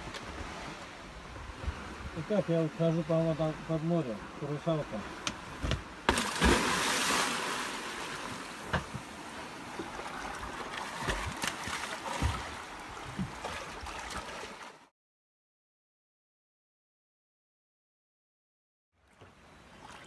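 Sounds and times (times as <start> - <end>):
big splash into water: 6.0 - 8.7
swimmer splashing and kicking: 6.0 - 14.9.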